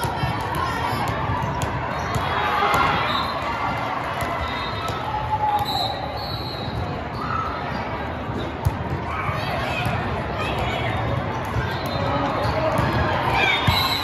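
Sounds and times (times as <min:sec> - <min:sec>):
volleyballs thudding: 0:00.0 - 0:05.8
crowd chatter and calls: 0:00.0 - 0:14.0.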